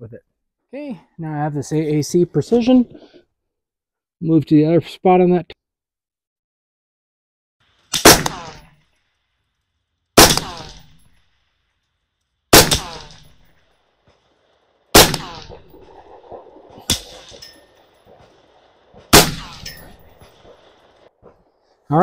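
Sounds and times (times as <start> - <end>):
suppressed rifle shots: 7.9 - 8.8, 10.2 - 11.2, 12.5 - 13.5, 14.9 - 18.4, 19.0 - 21.0.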